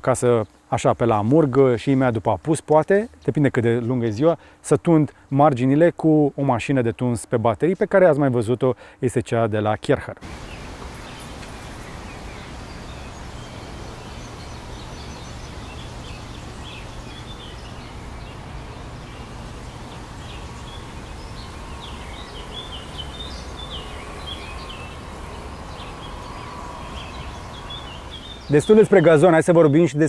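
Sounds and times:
faint steady whine: 0:10.2 - 0:29.4
small birds chirping: 0:10.2 - 0:30.0.

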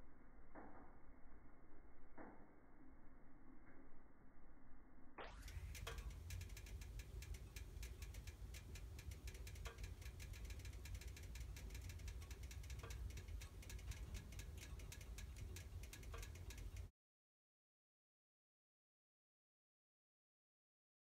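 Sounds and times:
low steady rumble: 0:00.0 - 0:16.9
wood fire crackling and popping: 0:05.4 - 0:16.9.

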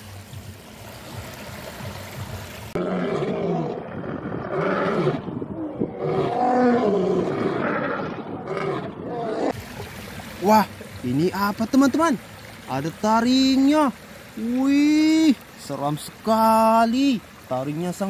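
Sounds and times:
running stream water: 0:00.0 - 0:18.0
lions roaring: 0:02.8 - 0:09.6.

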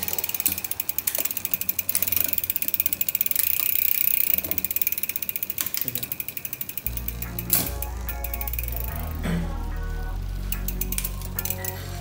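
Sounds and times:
bicycle hub clicking: 0:00.0 - 0:12.0.

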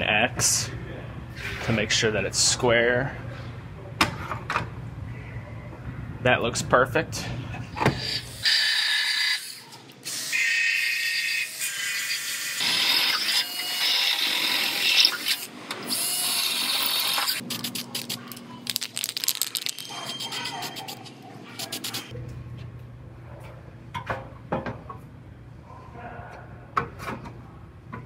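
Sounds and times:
drill boring through sheet steel: 0:10.1 - 0:17.4
spray can rattling: 0:17.6 - 0:19.9.

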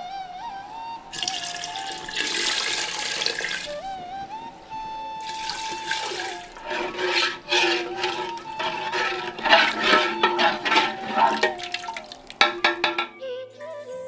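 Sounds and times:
spoon stirring watery mixture: 0:01.1 - 0:03.7, 0:05.2 - 0:13.1
water pouring into metal pot: 0:01.1 - 0:03.9, 0:05.2 - 0:13.1.

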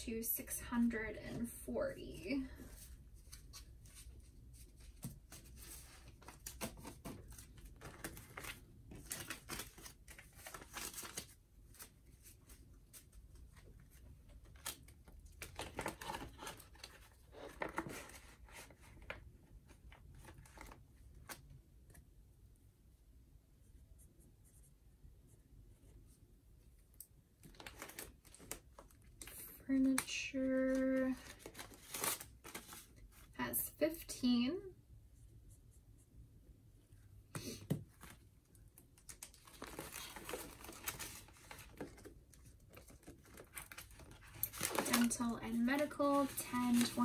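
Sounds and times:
banknotes and plastic pockets rustling: 0:27.4 - 0:33.3, 0:39.0 - 0:47.0.

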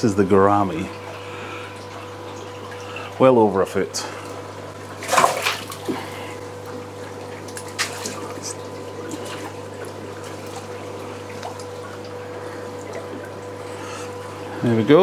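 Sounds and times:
steady hum: 0:00.0 - 0:15.0
water sloshing in aquarium: 0:00.0 - 0:15.0
short sharp splashes: 0:04.9 - 0:06.1, 0:07.5 - 0:11.9.

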